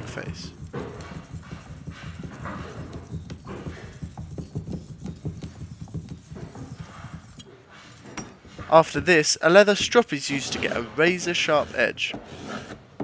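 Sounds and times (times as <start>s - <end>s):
steel blade rubbing on oil stone: 0.3s - 8.8s.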